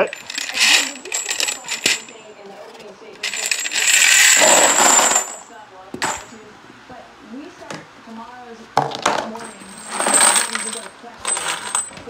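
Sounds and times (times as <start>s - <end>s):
brass cartridge cases rattling: 0.0s - 2.3s, 3.2s - 5.4s, 9.0s - 12.0s.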